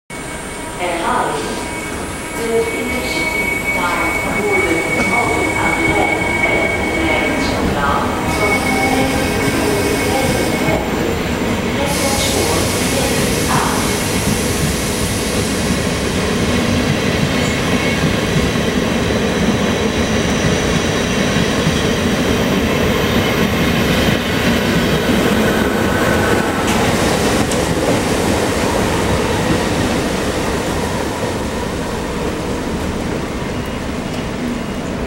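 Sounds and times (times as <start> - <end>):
train wheels rumbling on rail: 0.1 - 35.0
high wheel squeal: 1.4 - 7.6, 8.2 - 10.9.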